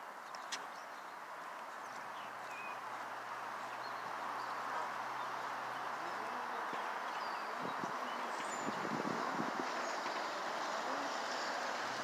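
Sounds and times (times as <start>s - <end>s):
steady rushing noise: 2.4s - 12.0s
bird chirps: 3.6s - 8.9s.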